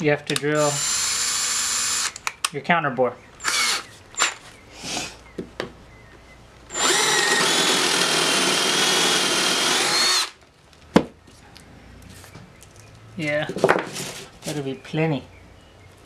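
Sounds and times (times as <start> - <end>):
cordless drill whining: 0.6 - 2.2, 3.4 - 4.4, 6.7 - 10.4.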